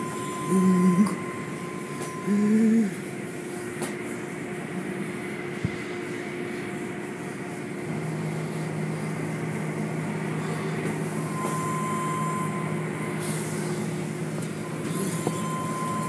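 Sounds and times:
high steady tone: 0.0 - 3.0
motor hum: 0.0 - 16.0.

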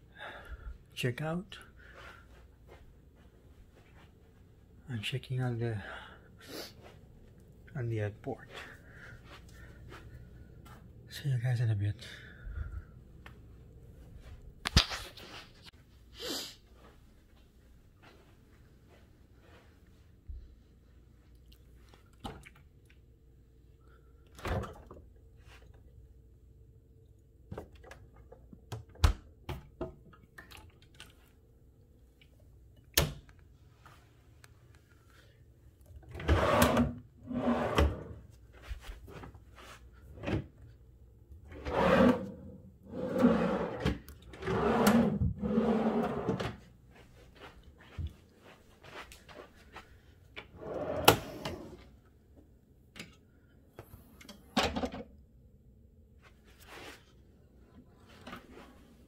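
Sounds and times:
drawers sliding: 36.1 - 38.2, 41.5 - 46.6, 50.5 - 51.9.

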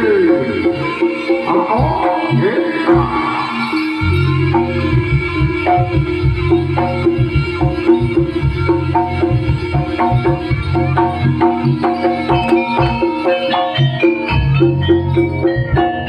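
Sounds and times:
tuned percussion notes: 0.0 - 16.0
steady low tone: 4.0 - 13.0.

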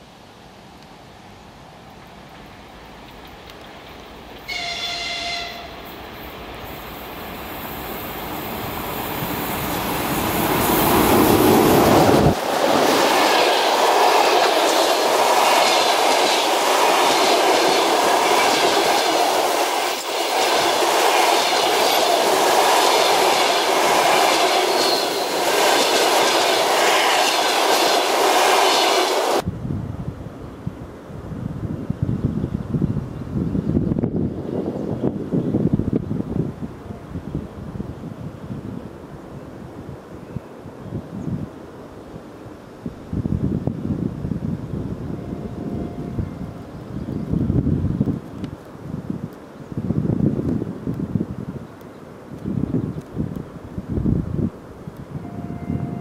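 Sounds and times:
train rumbling past: 1.2 - 29.5, 55.1 - 56.0
train horn blast: 4.5 - 5.8, 45.2 - 46.5, 55.2 - 56.0.

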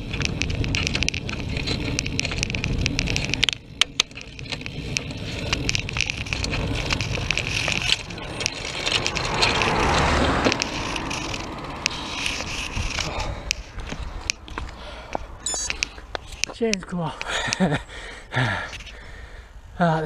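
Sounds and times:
wind rumbling on microphone: 0.0 - 16.6
bicycle clicks and rattles: 0.0 - 19.2
car passing: 4.8 - 15.4.

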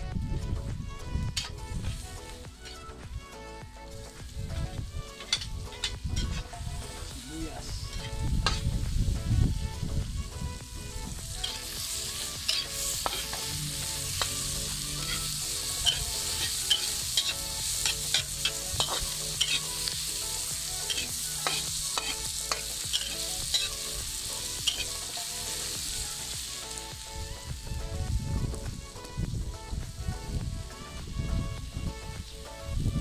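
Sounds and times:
onions sizzling in hot oil: 1.2 - 30.3
metal spatula scraping wok: 1.4 - 3.0, 4.5 - 8.8, 11.3 - 26.8.

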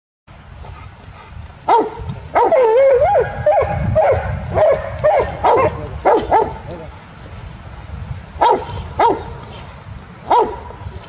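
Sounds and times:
dog barking: 1.7 - 6.6, 8.4 - 9.4, 10.3 - 10.7.

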